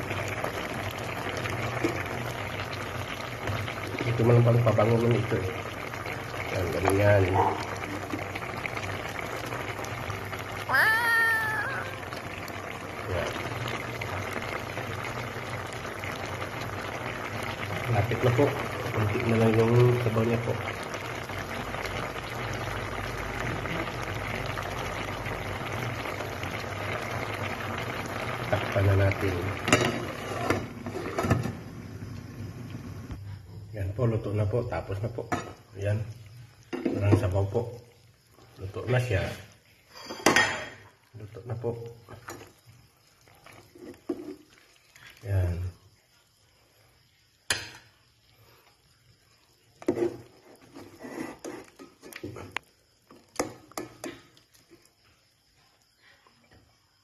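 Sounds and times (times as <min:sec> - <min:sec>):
stew bubbling in a pot: 0:00.0 - 0:57.0
ladle scraping pot: 0:49.8 - 0:52.3.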